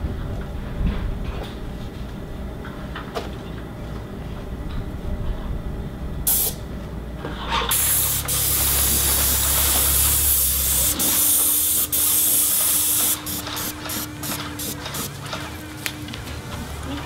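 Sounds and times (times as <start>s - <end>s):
spray gun hissing: 7.7s - 15.1s.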